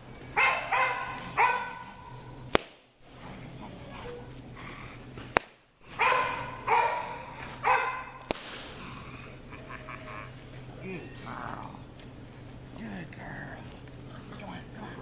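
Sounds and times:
puppies yipping: 0:00.2 - 0:02.5, 0:05.9 - 0:08.3.

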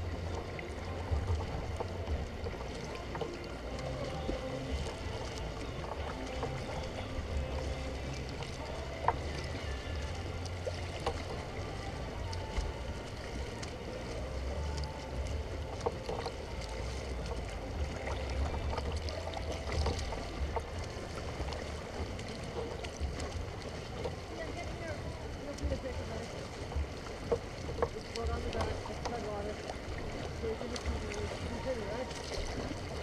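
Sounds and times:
low rumble: 0:00.0 - 0:33.0
water lapping against kayak hull: 0:00.0 - 0:33.0.

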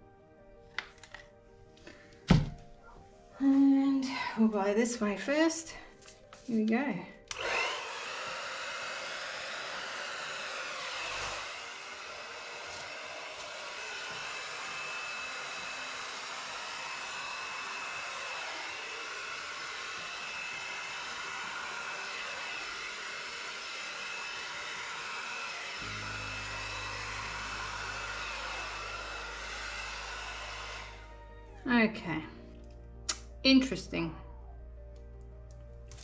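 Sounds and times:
hair dryer blowing: 0:07.3 - 0:31.2.

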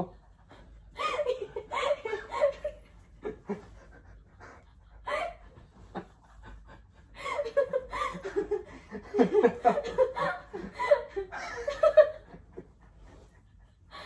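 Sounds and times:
woman laughing: 0:01.0 - 0:03.7, 0:07.2 - 0:12.4.

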